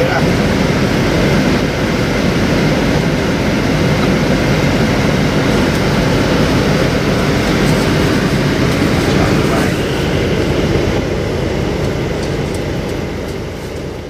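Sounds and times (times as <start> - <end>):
vehicle rumble: 3.6 - 14.0.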